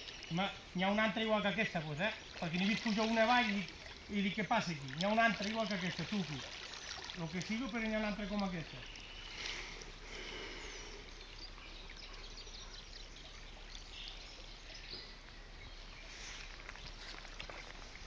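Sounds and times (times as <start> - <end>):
river water running and lapping: 0.0 - 18.0
fish splashing at surface: 2.4 - 7.8.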